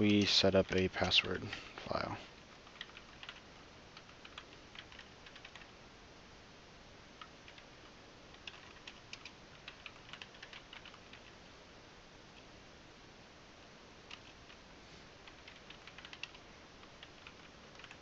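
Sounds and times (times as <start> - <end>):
faint keyboard typing: 0.0 - 5.7, 7.2 - 11.4, 12.3 - 12.5, 14.0 - 18.0.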